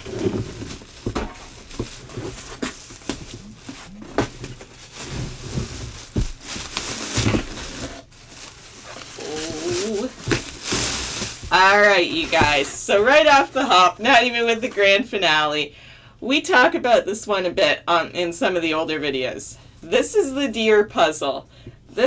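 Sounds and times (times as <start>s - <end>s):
plastic bag crinkling: 0.0s - 13.5s.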